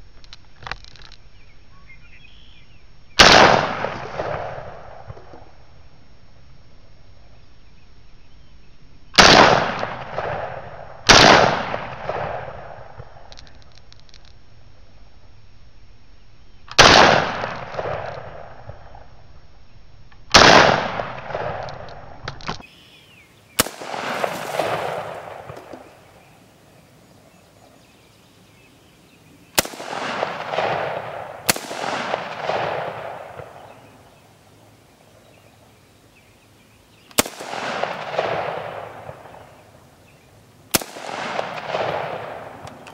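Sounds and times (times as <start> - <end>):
rifle shots with echo: 3.2 - 5.5, 9.2 - 13.3, 16.8 - 18.8, 20.3 - 21.9, 23.6 - 26.3, 29.5 - 34.0, 37.2 - 39.6, 40.7 - 42.9.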